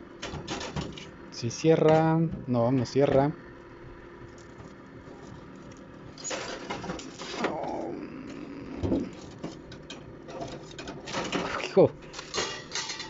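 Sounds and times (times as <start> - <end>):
faint steady hum: 0.0 - 13.0
metal clatter and knocks: 0.2 - 1.2, 4.4 - 7.5, 8.8 - 13.0.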